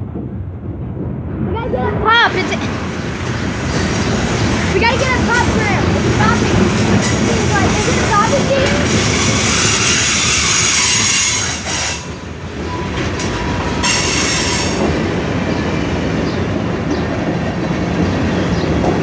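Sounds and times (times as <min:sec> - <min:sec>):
train wheels rumbling on rail: 0:00.0 - 0:19.0
thin wheel squeal: 0:07.8 - 0:14.8.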